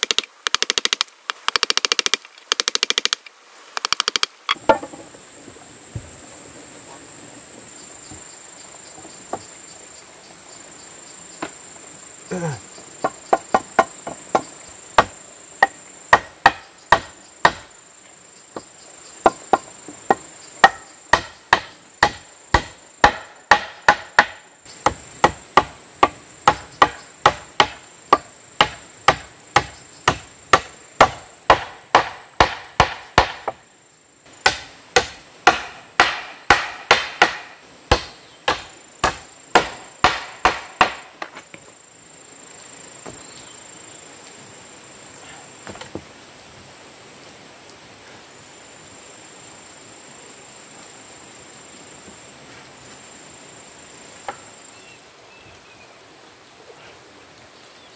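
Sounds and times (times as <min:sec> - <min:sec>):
high insect buzz: 0:00.0 - 0:56.5
hammer striking wood: 0:13.3 - 0:17.7, 0:19.2 - 0:33.6, 0:34.4 - 0:41.3.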